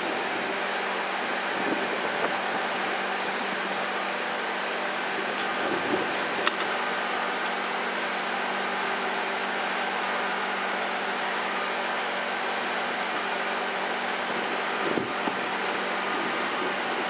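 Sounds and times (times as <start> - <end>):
locomotive fans humming: 0.0 - 17.0
sharp click: 6.4 - 6.7.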